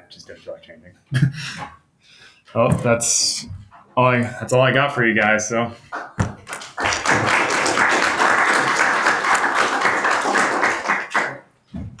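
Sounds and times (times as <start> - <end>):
audience clapping: 6.0 - 11.5.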